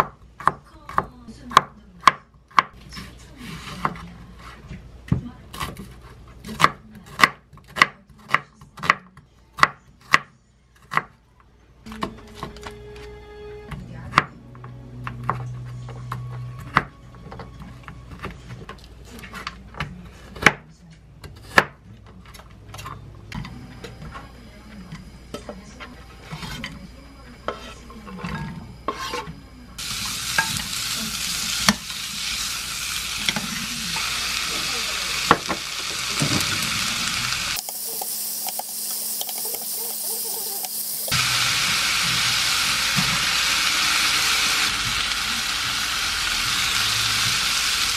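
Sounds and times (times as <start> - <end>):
food sizzling in frying pan: 29.8 - 47.9.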